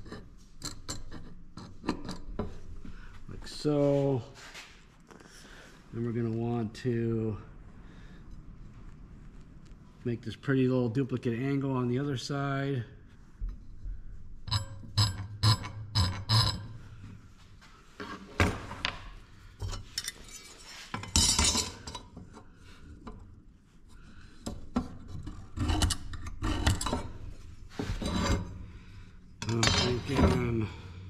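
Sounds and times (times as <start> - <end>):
metal tools clinking on steel: 29.4 - 30.5.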